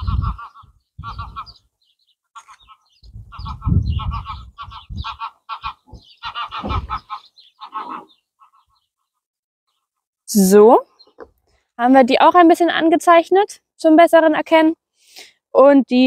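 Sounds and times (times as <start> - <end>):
geese honking: 0.0 - 1.6, 2.4 - 9.1
wind rumbling on microphone: 0.0 - 1.6, 3.0 - 7.1.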